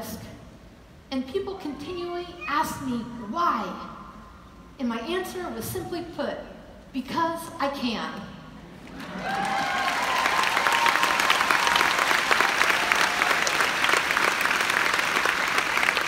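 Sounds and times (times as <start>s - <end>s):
large audience applauding: 8.8s - 16.0s.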